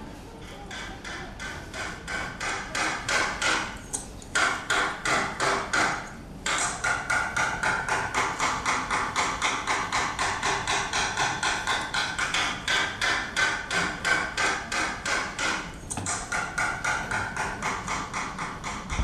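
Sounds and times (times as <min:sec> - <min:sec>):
rapid percussive knocking: 0:00.4 - 0:03.8, 0:04.4 - 0:19.0.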